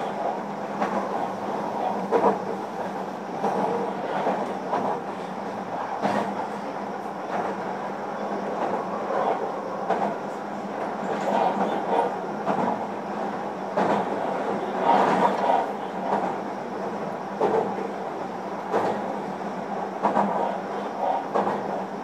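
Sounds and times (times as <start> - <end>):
wheels clacking over rail joints: 0.0 - 5.1, 10.8 - 16.4, 17.4 - 17.9, 18.6 - 19.1, 20.0 - 21.8
train wheels rumbling on rail: 0.0 - 22.0.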